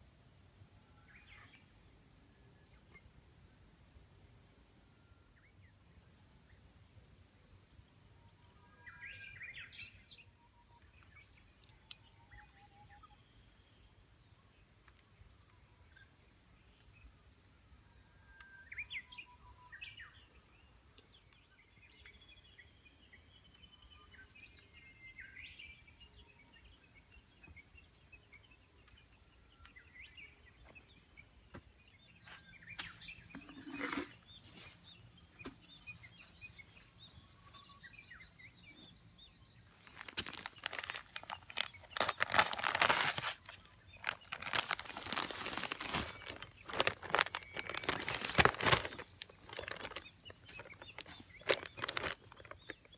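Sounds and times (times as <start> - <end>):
birds chirping: 26.7 - 52.9
plastic sack rustling: 39.8 - 52.9.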